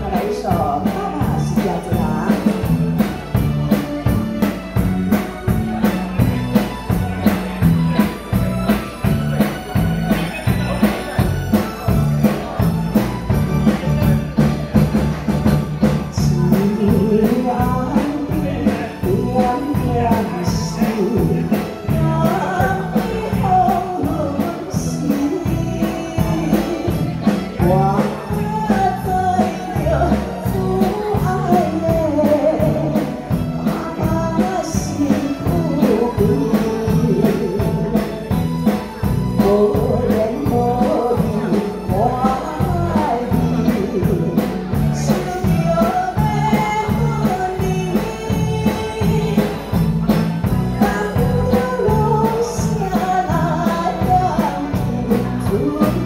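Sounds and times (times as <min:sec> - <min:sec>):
live pop band playing: 0:00.0 - 0:56.0.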